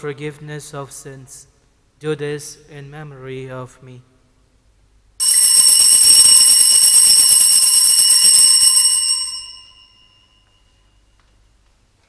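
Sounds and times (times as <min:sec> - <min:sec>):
altar bells ringing: 0:05.2 - 0:11.1.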